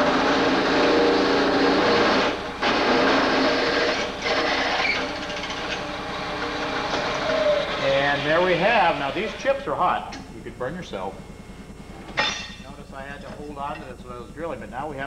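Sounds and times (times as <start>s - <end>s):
drill bit grinding into steel: 0.0s - 8.3s
drill press motor hum: 0.0s - 14.6s.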